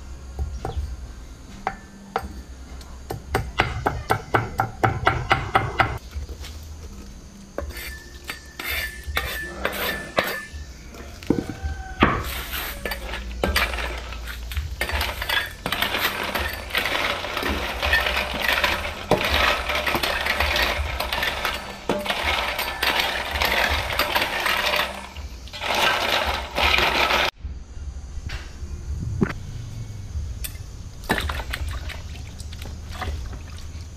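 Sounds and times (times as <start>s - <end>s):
snail shells clattering on metal: 12.3s - 27.3s
water sloshing: 31.0s - 33.9s.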